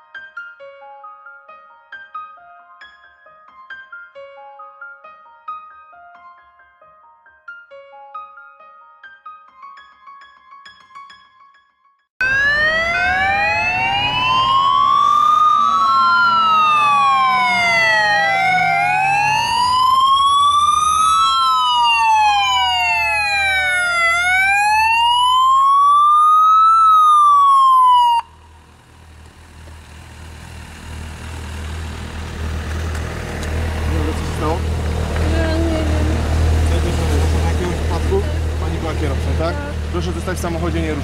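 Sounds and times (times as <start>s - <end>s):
police sirens wailing: 12.2s - 28.5s.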